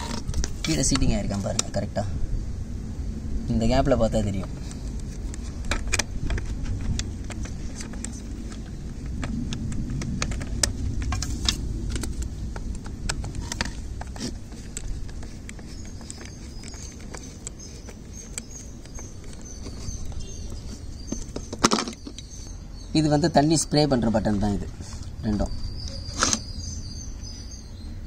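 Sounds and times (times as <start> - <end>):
low steady rumble: 0.0 - 21.4.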